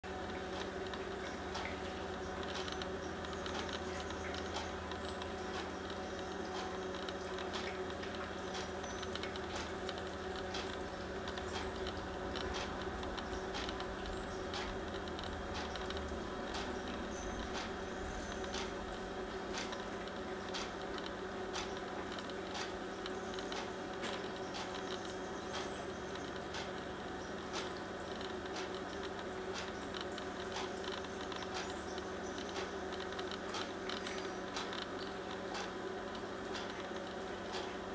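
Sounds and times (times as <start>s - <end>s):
steady low hum: 0.0s - 37.9s
birds ticking at feeder: 0.4s - 37.8s.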